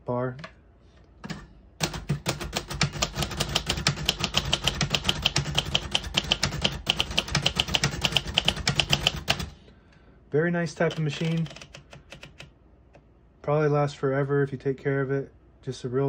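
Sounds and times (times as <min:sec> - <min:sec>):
typewriter keystroke clacks: 0:01.8 - 0:09.5, 0:10.8 - 0:12.5.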